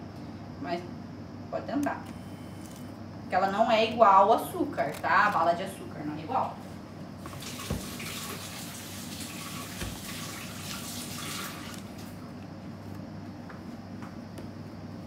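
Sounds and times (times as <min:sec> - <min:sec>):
tap water running into sink: 0:07.3 - 0:11.7.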